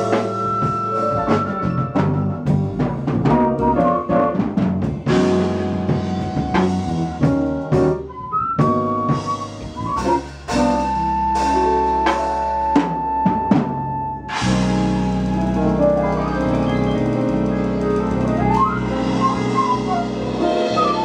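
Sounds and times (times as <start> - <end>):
drum kit striking: 0.0 - 21.0
jazz-funk band playing: 0.0 - 21.0
held high note: 14.2 - 21.0.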